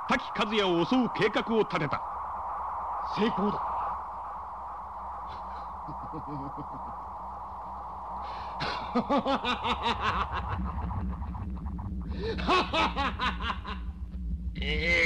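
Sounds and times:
low steady drone: 0.0s - 15.0s
man laughing villainously: 5.8s - 7.0s, 8.6s - 11.6s, 12.2s - 13.9s.

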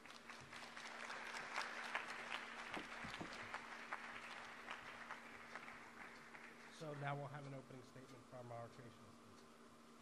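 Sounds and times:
audience applauding: 0.0s - 7.0s
faint steady hum: 0.0s - 10.0s.

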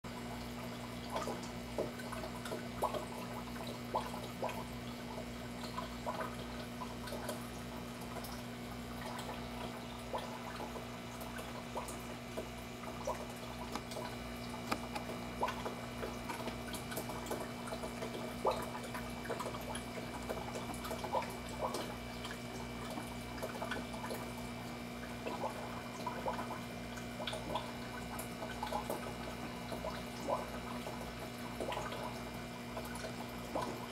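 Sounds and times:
tank pump humming: 0.1s - 33.9s
water trickling and dripping: 0.1s - 33.9s.

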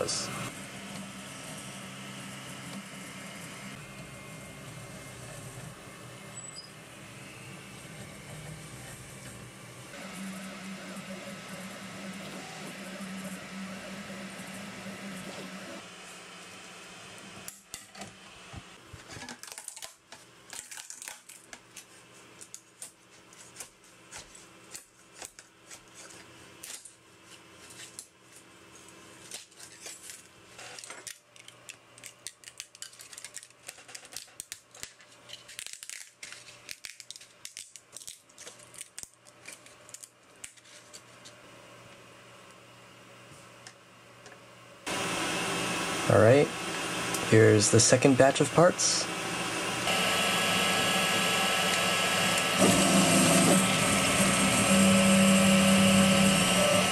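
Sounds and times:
printer motors humming: 0.0s - 17.4s, 44.9s - 56.9s.

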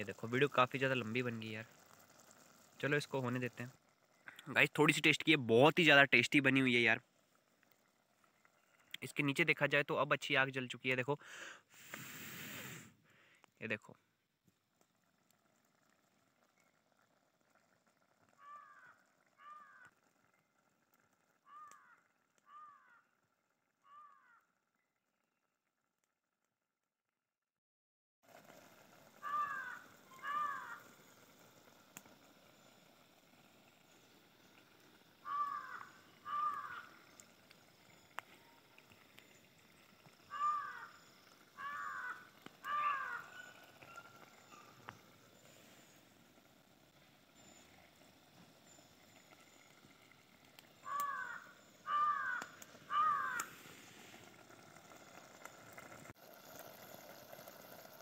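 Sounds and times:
crow cawing faintly: 18.4s - 20.0s, 21.5s - 23.1s, 23.8s - 24.5s, 29.2s - 31.0s, 35.2s - 37.2s, 40.2s - 44.7s, 50.8s - 53.7s
bird calling: 21.5s - 23.0s, 29.2s - 31.2s, 35.2s - 46.0s, 50.6s - 54.0s.

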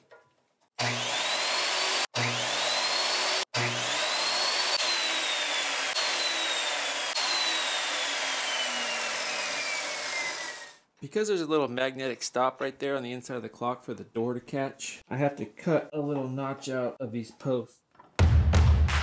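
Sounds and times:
miter saw cutting wood: 0.8s - 10.8s.

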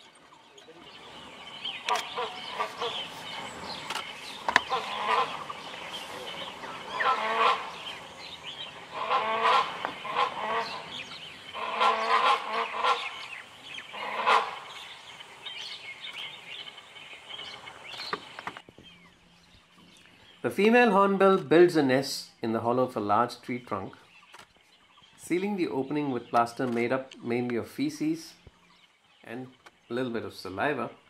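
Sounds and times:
hornbills barking: 0.0s - 20.8s.

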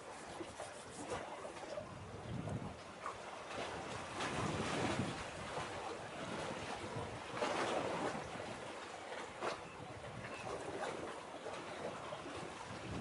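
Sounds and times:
wind on microphone: 0.3s - 2.8s, 3.6s - 8.6s, 9.4s - 11.1s, 11.7s - 13.0s
waves washing against concrete: 3.5s - 9.6s.

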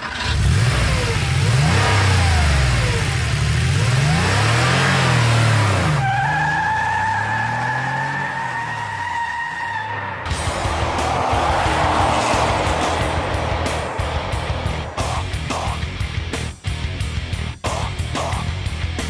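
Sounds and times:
car engine revving: 0.0s - 18.7s
tyres squealing: 5.9s - 13.9s.

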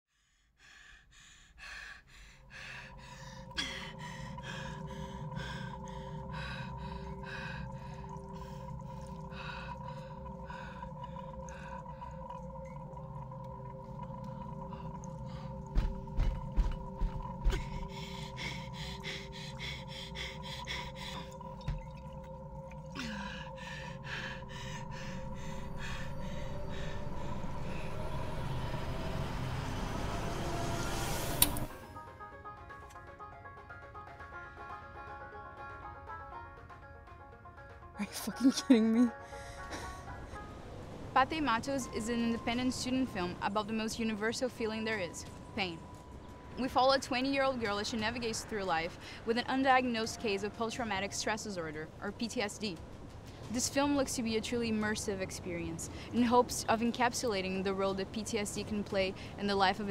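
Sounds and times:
woman panting: 0.1s - 11.9s, 17.4s - 21.4s, 23.0s - 27.6s
rapid heavy breathing: 0.1s - 12.3s, 14.5s - 21.6s
low rumble: 2.1s - 31.8s
steady ringing tones: 3.4s - 29.1s.

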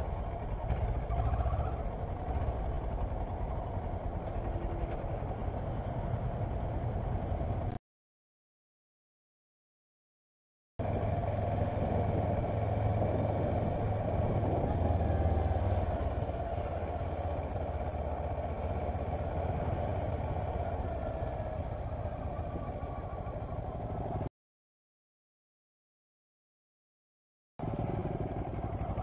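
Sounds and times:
motorcycle engine running: 0.0s - 7.8s, 10.8s - 24.3s, 27.6s - 29.0s
wind noise on microphone: 11.7s - 15.4s.

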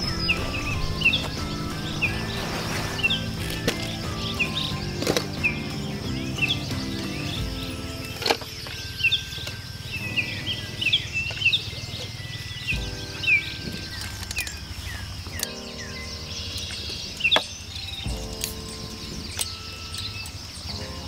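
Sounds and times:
birds chirping: 0.0s - 21.0s
insect buzz: 0.0s - 21.0s
soft background music: 0.0s - 21.0s.

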